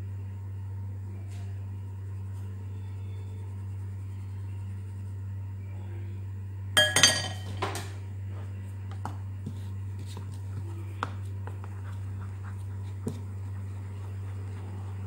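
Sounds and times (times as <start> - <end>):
low hum: 0.0 - 15.0
spatula stirring flour in bowl: 1.3 - 5.4, 8.6 - 15.0.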